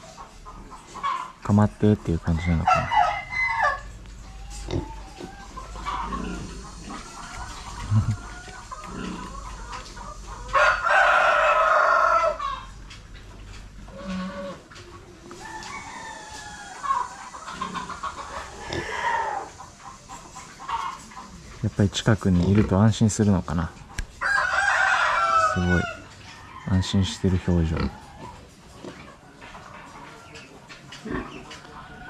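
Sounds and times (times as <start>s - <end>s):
chickens clucking: 0.0s - 32.0s
rooster crowing: 2.4s - 4.0s, 10.4s - 12.7s, 15.3s - 17.8s, 24.2s - 28.3s.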